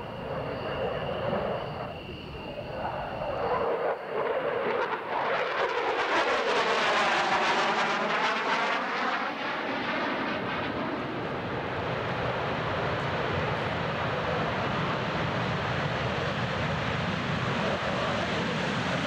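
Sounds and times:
jet engines on takeoff roll: 0.0 - 19.0
jet passing overhead: 0.0 - 19.0.

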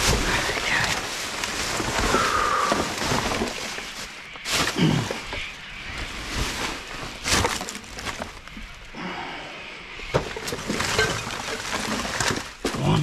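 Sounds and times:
rubbish rustling: 0.0 - 8.9, 10.0 - 13.0.

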